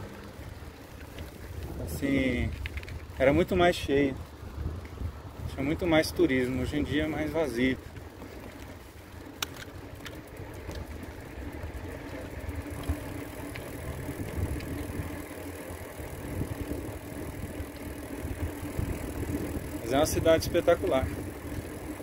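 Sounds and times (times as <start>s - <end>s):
light clicks and rattles: 0.0s - 4.1s, 6.4s - 16.8s
bicycle tyres rumbling on pavement: 0.0s - 22.0s
wind on microphone: 1.5s - 3.2s, 3.8s - 6.0s, 13.8s - 15.2s.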